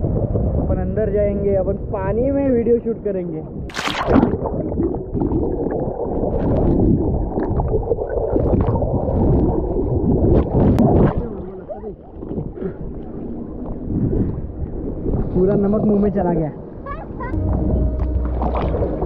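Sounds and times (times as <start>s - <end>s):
water splashing and bubbling: 3.6s - 15.3s, 17.3s - 19.0s
muffled underwater rumble and gurgle: 3.7s - 15.4s, 17.3s - 19.0s
small waves splashing: 3.7s - 15.4s.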